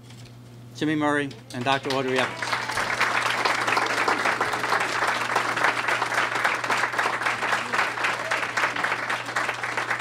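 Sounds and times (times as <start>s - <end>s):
crowd applauding: 1.6s - 10.0s.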